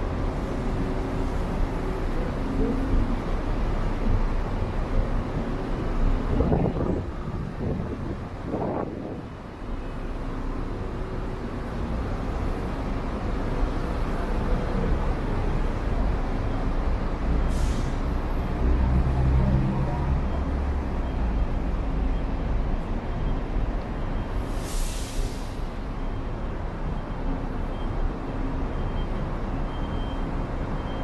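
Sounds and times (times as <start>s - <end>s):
low rumble of traffic: 0.0s - 31.0s
short sharp hiss: 24.5s - 25.7s.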